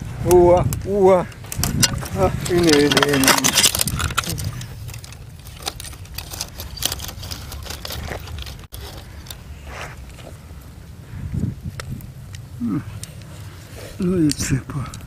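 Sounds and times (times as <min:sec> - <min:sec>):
dry brush crackling and scraping: 0:01.2 - 0:15.0.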